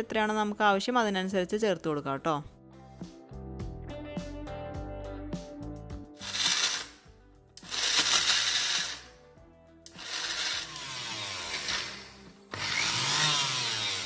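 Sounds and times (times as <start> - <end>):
mixer grinder grinding: 6.2 - 7.0, 7.6 - 9.1, 9.9 - 14.0.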